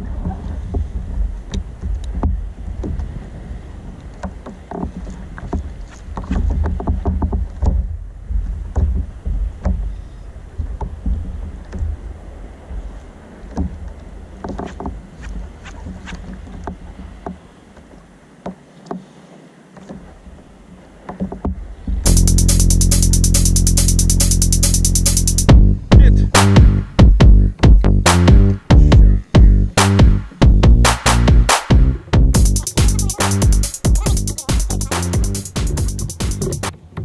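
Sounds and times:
wind rumbling on microphone: 0:00.0 - 0:18.0
water lapping against kayak hull: 0:00.0 - 0:22.1
music: 0:22.1 - 0:36.8.

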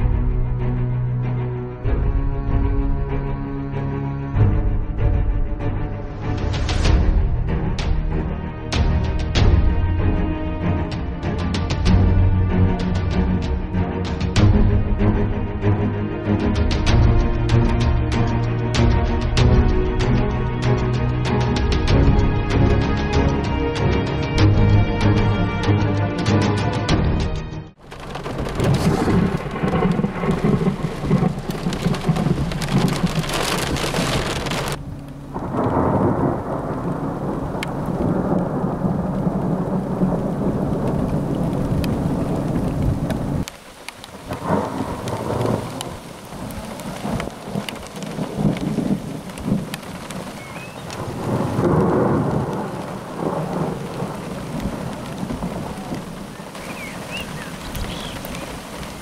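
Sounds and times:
rain falling outdoors: 0:00.0 - 0:59.0
heavy rain on windshield: 0:27.8 - 0:59.0
thunder rumbling: 0:27.8 - 0:59.0.

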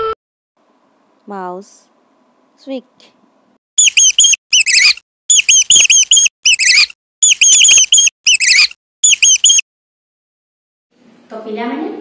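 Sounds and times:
mouse squeaking: 0:03.8 - 0:09.6.

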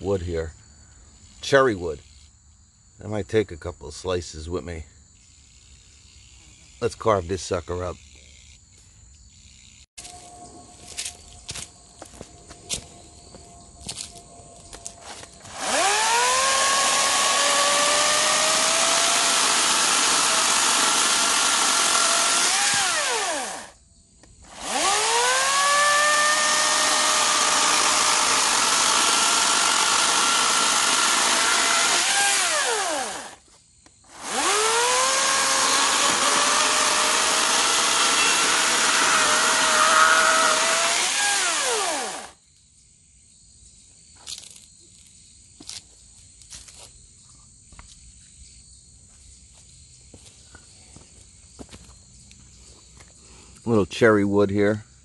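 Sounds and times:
electric chainsaw cutting log: 0:14.8 - 0:23.8, 0:24.4 - 0:33.4, 0:34.1 - 0:42.4.

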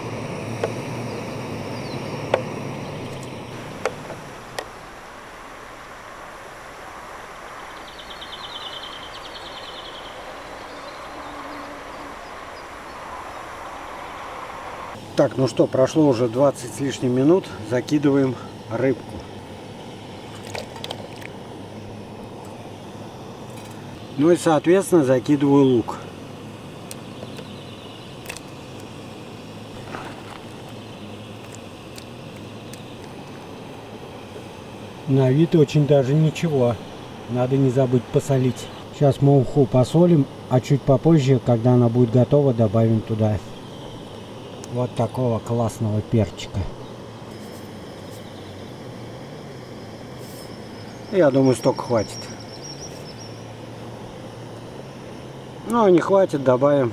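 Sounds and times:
gas burner hissing: 0:00.0 - 0:56.9
steady rushing noise: 0:00.0 - 0:56.9
small bird trilling: 0:07.7 - 0:14.4, 0:50.5 - 0:53.6.

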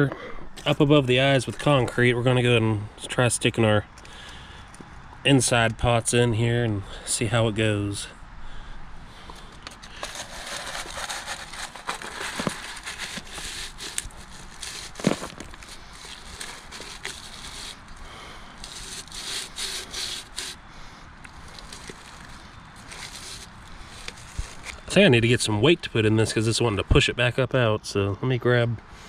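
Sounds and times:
rubbing and crackling: 0:09.3 - 0:26.8.

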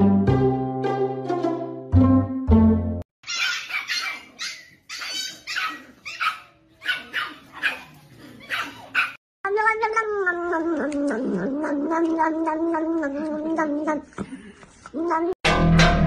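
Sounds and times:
small dog barking: 0:03.3 - 0:09.2.

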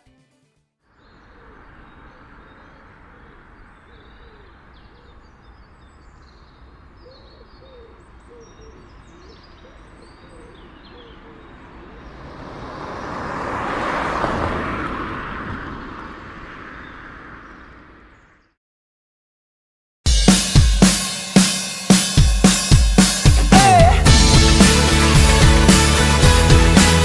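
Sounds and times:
birds chirping and calling: 0:01.0 - 0:12.3.

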